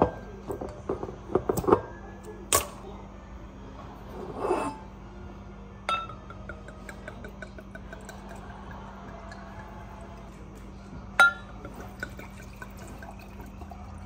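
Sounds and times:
wine bottle and glass handling: 4.2s - 4.8s, 11.2s - 13.3s
glasses clinking: 4.3s - 4.9s, 5.9s - 10.3s, 11.1s - 14.0s.

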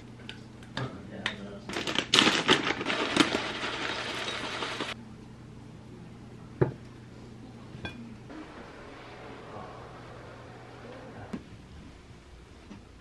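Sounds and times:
granola pouring into bowl: 1.8s - 5.0s.

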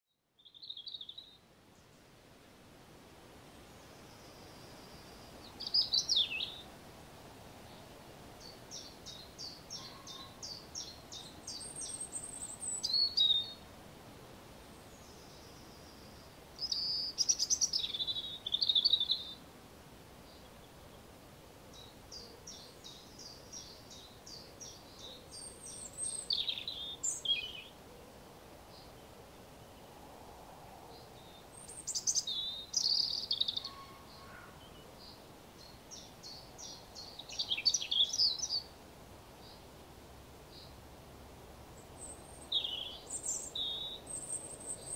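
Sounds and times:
robin singing: 0.4s - 2.0s, 3.9s - 6.7s, 8.4s - 13.6s, 14.8s - 19.4s, 21.7s - 27.8s, 30.9s - 38.8s, 41.8s - 44.9s.

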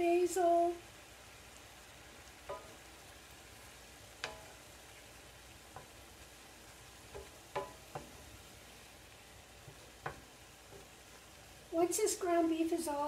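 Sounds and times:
meat sizzling in a skillet: 0.0s - 13.0s
wooden spatula knocking pan: 2.4s - 2.8s, 4.2s - 4.7s, 5.7s - 6.0s, 7.0s - 8.3s, 9.6s - 11.0s.

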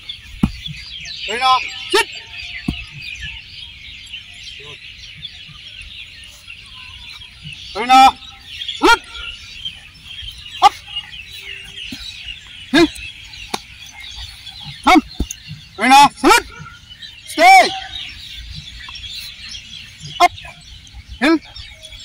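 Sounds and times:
loud short rising and falling calls: 6.3s - 20.6s.

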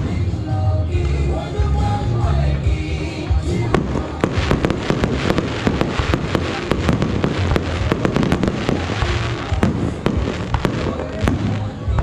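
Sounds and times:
fireworks bangs and crackles: 3.4s - 12.0s.

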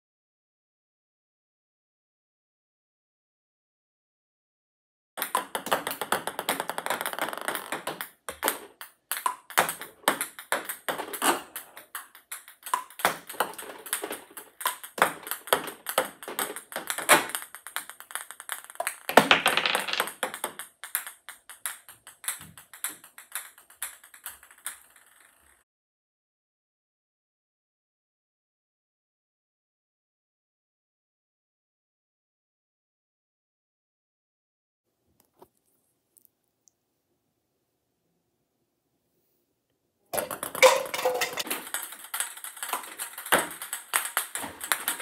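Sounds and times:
ping pong balls clicking: 5.2s - 25.6s, 40.2s - 45.0s.

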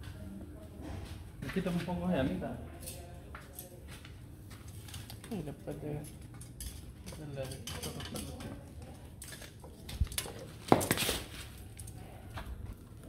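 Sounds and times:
metal tongs clinking on grill: 5.8s - 8.6s.

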